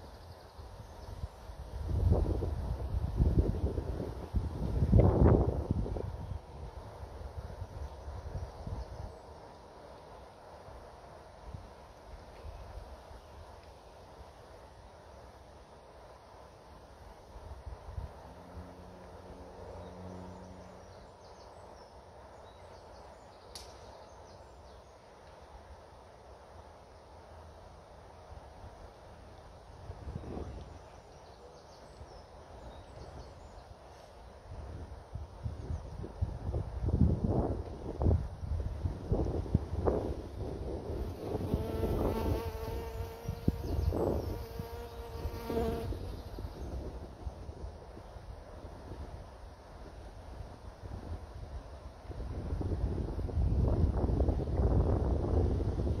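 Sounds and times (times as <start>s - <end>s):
wind rumbling on microphone: 0.0s - 9.2s, 29.6s - 31.2s, 34.3s - 56.0s
flying insect buzzing: 41.0s - 46.8s.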